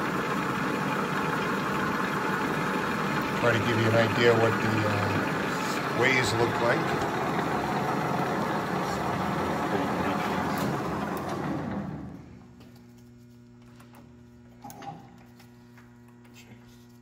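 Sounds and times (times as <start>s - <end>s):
lathe running: 0.0s - 12.4s
low electrical hum: 0.0s - 17.0s.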